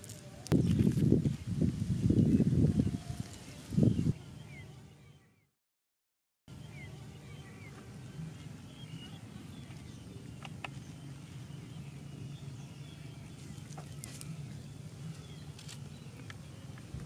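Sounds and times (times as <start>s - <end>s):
birds chirping faintly: 0.0s - 5.5s, 6.5s - 17.0s
steady low hum: 6.5s - 17.0s.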